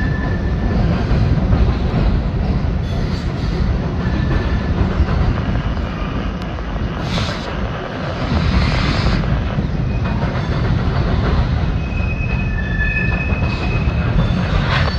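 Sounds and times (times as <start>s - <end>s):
train wheels rumbling on bridge: 0.0s - 14.9s
high-pitched wheel squeal: 11.8s - 14.9s.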